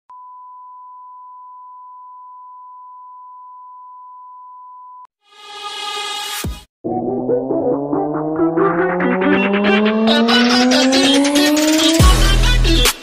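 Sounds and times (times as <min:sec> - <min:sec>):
rising intro sound effect: 0:06.8 - 0:12.1.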